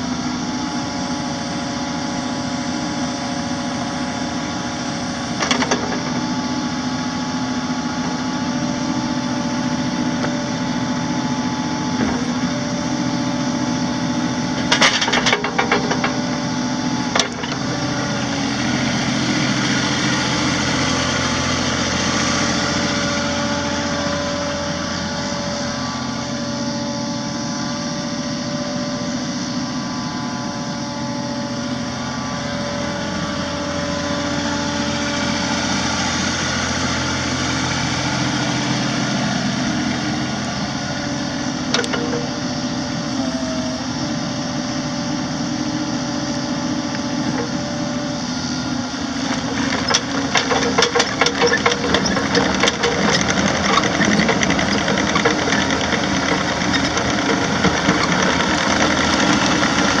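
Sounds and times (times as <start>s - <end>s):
diesel engine running: 0.0s - 60.0s
rapid rattling clicks: 49.3s - 60.0s.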